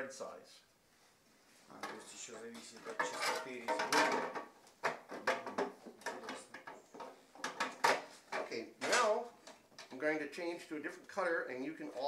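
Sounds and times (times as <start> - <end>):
metal cover clicks and clatters: 2.8 - 9.9
person speaking: 8.3 - 12.0.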